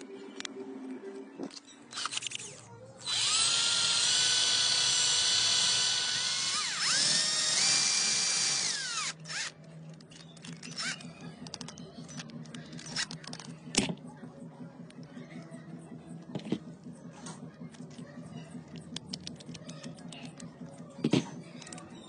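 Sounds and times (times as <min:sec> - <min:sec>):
cordless drill drilling metal: 0:02.0 - 0:09.5.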